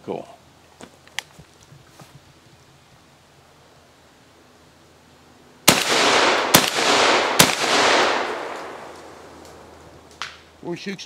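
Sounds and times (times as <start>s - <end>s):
shotgun shots echoing: 5.6s - 9.6s.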